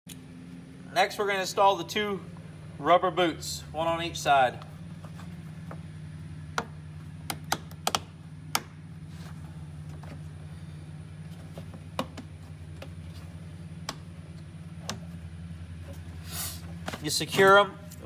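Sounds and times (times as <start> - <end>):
steady low hum: 0.1 - 18.0.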